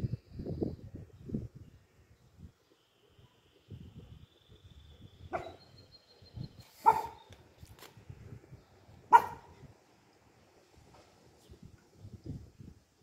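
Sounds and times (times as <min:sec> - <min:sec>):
puppy barking: 0:05.3 - 0:05.6, 0:06.8 - 0:07.2, 0:09.1 - 0:09.6.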